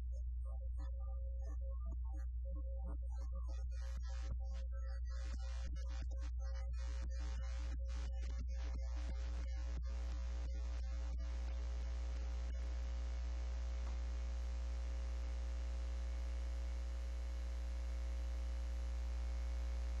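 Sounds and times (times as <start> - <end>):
electrical mains hum with hiss: 5.0 - 20.0.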